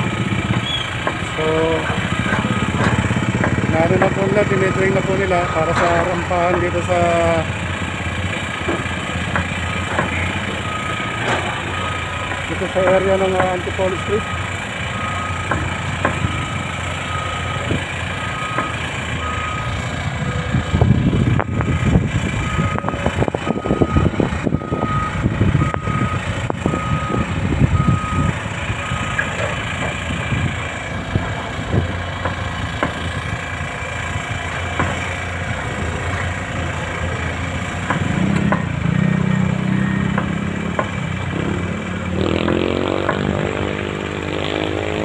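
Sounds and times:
reversing alarm beeping: 0.0 - 30.6, 37.2 - 43.3
heavy machinery diesel engines: 0.0 - 45.0
machinery clanks: 0.1 - 14.4.

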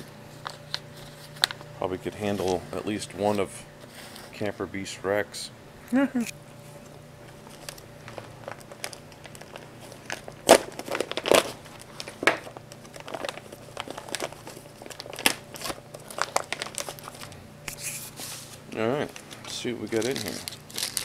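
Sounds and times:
plastic bag tearing and crinkling: 7.4 - 17.4, 19.2 - 21.0.

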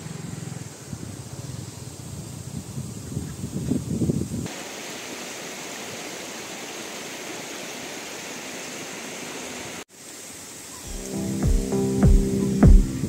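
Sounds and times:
river water rushing over rocks: 4.5 - 11.7.

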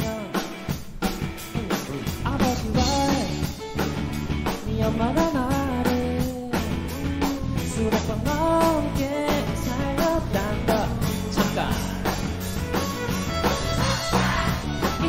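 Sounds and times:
male lead vocal singing: 0.0 - 0.6, 1.6 - 3.6, 4.6 - 6.7, 7.5 - 12.3
drum beat: 0.0 - 15.0
electric bass: 0.0 - 15.0
guitar: 0.0 - 15.0.

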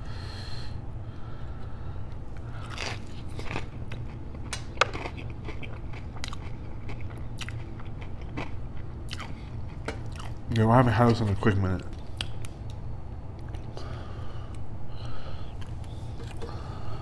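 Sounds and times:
low hum: 0.0 - 17.0
crunchy bite and chewing: 2.4 - 10.4.

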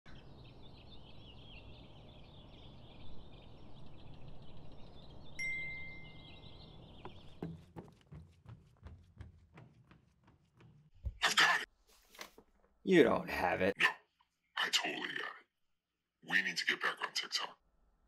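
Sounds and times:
birds chirping: 0.1 - 10.9.

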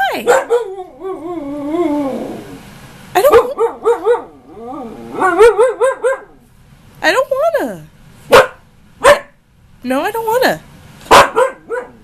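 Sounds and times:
husky moaning and howling: 0.5 - 2.8, 3.5 - 6.4.

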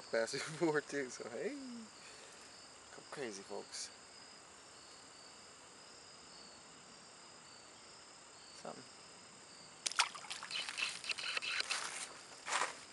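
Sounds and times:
crickets chirping: 0.0 - 12.9
splashing in shallow water: 9.8 - 12.0.

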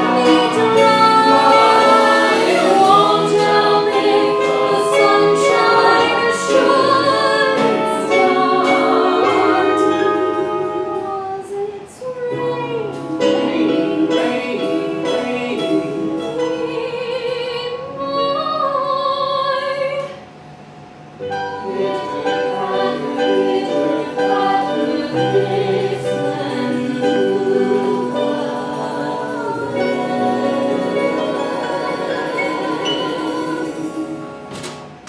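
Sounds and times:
theatre band playing: 0.0 - 18.8, 19.6 - 35.0
person singing with vibrato: 0.0 - 20.4, 21.4 - 34.6.

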